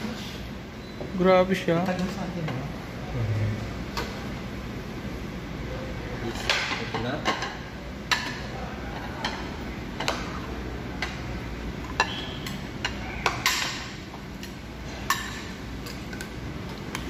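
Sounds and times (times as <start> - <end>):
low room hum: 0.0 - 17.0
dishes and cutlery clinking: 6.3 - 10.4, 11.0 - 16.8.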